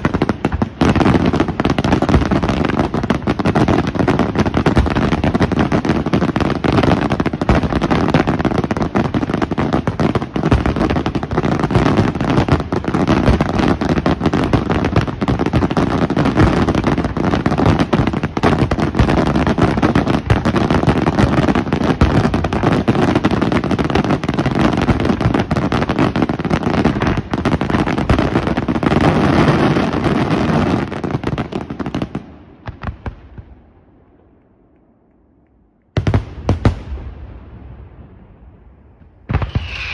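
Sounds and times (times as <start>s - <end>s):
fireworks bursting and crackling: 0.0s - 39.9s
scattered firework pops: 39.0s - 39.9s.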